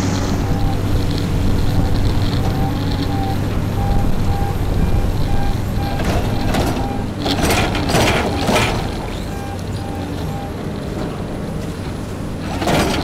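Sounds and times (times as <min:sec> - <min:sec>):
diesel engine running: 0:00.0 - 0:13.0
warning alarm beeping: 0:00.2 - 0:01.0, 0:01.7 - 0:10.7.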